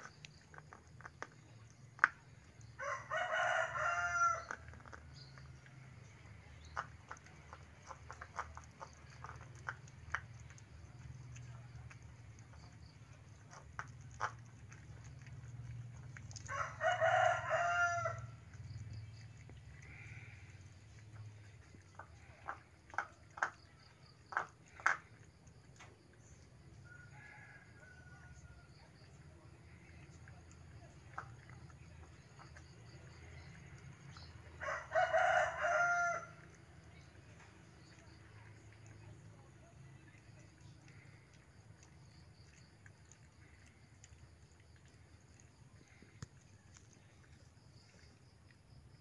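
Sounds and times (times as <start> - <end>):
rooster crowing: 2.8 - 4.6, 16.5 - 18.3, 26.8 - 28.8, 34.6 - 36.4
faint ticks: 35.4 - 49.0.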